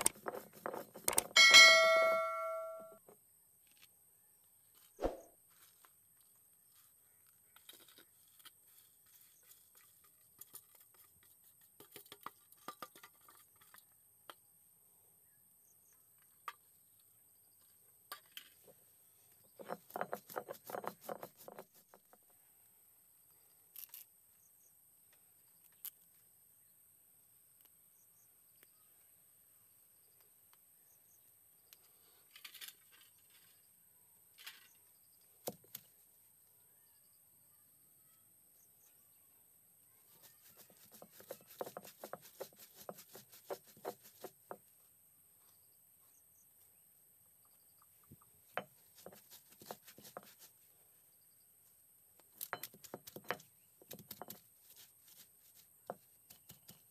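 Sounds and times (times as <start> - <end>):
stone roller crushing spices: 0.0 - 1.6, 19.5 - 22.2, 40.2 - 44.6, 48.6 - 50.5, 52.3 - 56.9.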